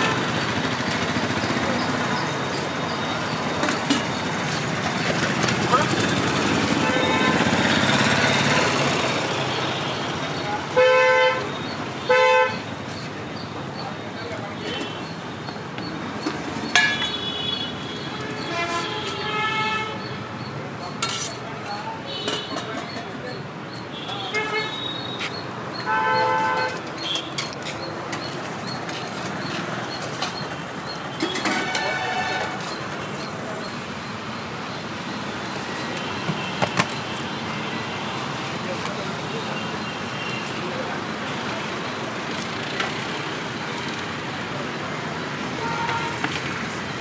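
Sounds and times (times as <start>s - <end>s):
traffic hum: 0.0s - 47.0s
vehicle horn honking: 6.8s - 7.6s, 10.7s - 12.7s, 16.8s - 20.0s, 25.8s - 27.3s, 31.2s - 32.6s, 45.6s - 46.2s.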